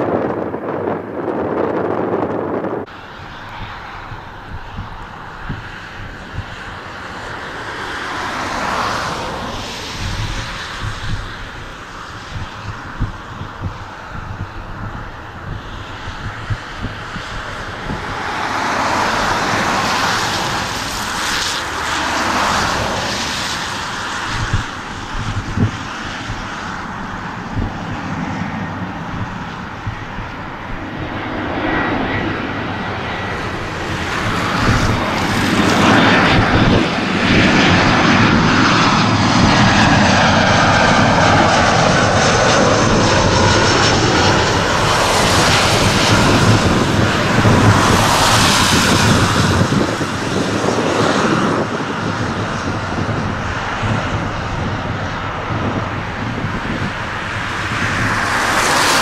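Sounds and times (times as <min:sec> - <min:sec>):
airliner jet engines: 0:00.0 - 0:59.0.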